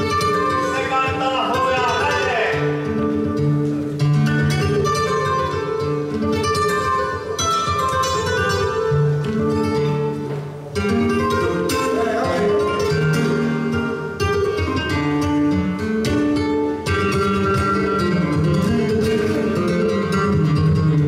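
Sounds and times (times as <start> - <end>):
flamenco guitar solo: 0.0 - 21.0.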